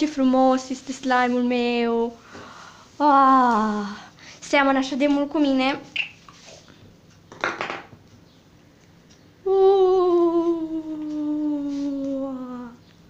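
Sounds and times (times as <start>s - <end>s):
person humming sliding note: 9.5s - 12.8s.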